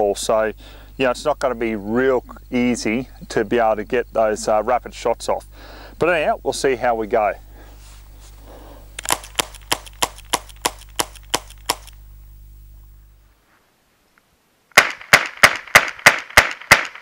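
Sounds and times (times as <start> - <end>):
rapid rifle shots: 9.0 - 12.0, 14.8 - 17.0.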